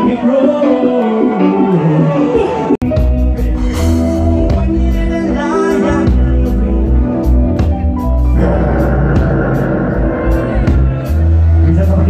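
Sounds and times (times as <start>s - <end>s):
person singing into a microphone: 0.0s - 2.8s, 4.4s - 7.3s
heavy bass line: 0.0s - 12.0s
live reggae band playing: 0.0s - 12.0s.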